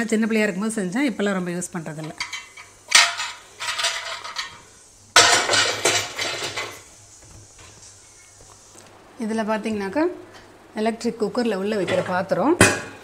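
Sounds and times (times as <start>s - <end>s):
steel plates clanking: 2.0s - 6.9s.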